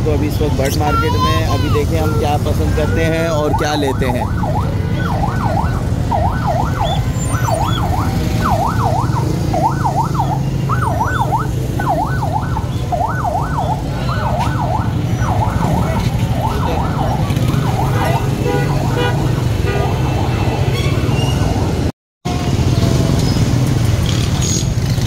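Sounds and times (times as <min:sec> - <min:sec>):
traffic engines rumbling: 0:00.0 - 0:25.0
electronic siren yelping: 0:03.0 - 0:21.8.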